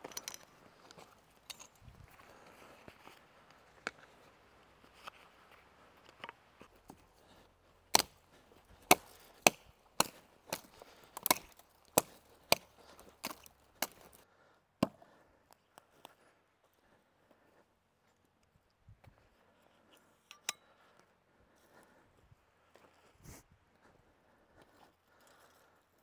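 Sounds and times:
axe chopping into tree trunk: 0:07.9 - 0:14.2, 0:14.8 - 0:15.0.

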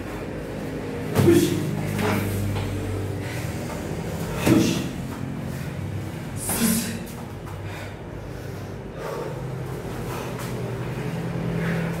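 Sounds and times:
people breathing hard: 0:00.1 - 0:12.0
sharp exhales: 0:06.4 - 0:10.6.

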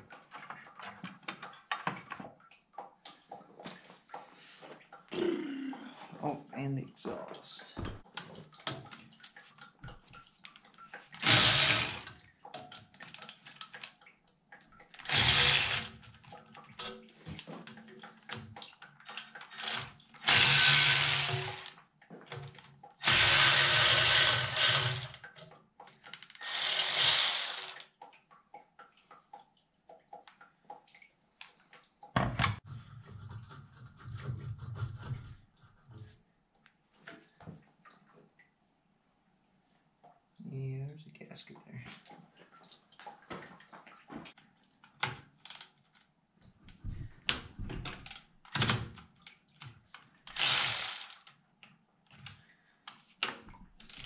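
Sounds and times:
cordless power tool whirring: 0:11.2 - 0:12.1, 0:15.1 - 0:15.9, 0:19.6 - 0:21.7, 0:23.0 - 0:25.2, 0:26.4 - 0:27.8, 0:50.3 - 0:51.2.

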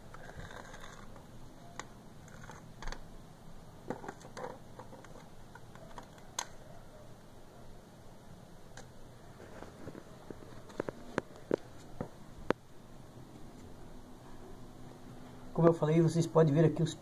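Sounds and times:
low background hiss: 0:00.0 - 0:17.0
small clicks and knocks: 0:03.9 - 0:06.6.

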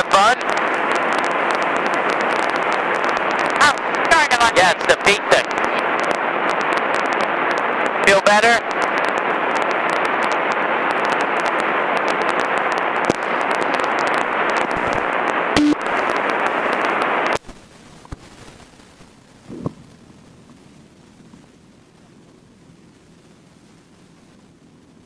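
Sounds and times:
cockpit noise hiss over intercom: 0:00.0 - 0:01.3, 0:03.5 - 0:06.8, 0:07.7 - 0:08.7
intercom crackles: 0:00.0 - 0:20.0.

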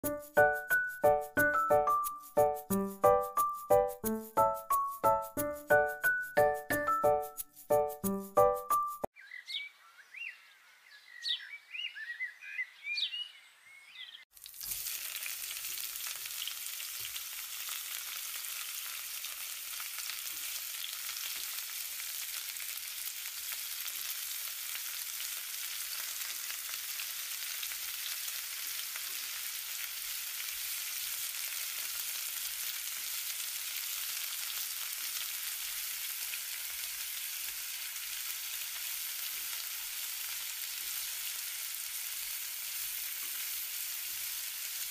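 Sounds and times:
onions sizzling in hot oil: 0:14.3 - 0:44.9.

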